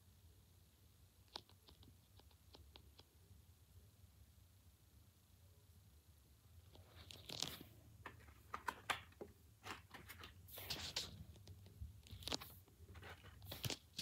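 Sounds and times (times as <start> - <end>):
paper cube handling noise: 6.7 - 14.0.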